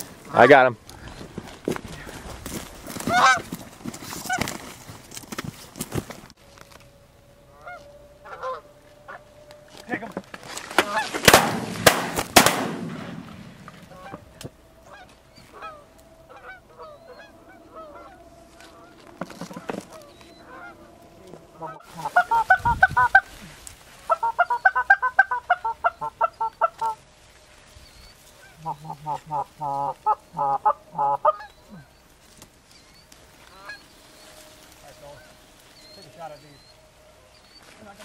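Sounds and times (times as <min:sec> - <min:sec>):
goose honking: 0:02.9 - 0:04.6, 0:07.4 - 0:11.3, 0:13.8 - 0:38.0.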